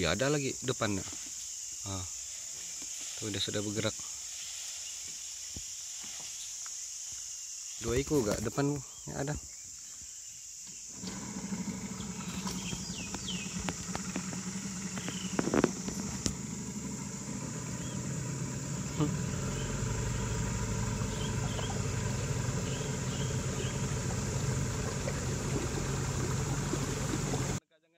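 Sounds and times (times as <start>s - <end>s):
high insect drone: 0.0s - 27.6s
boat motor running: 10.9s - 27.6s
high chirps: 16.9s - 27.6s.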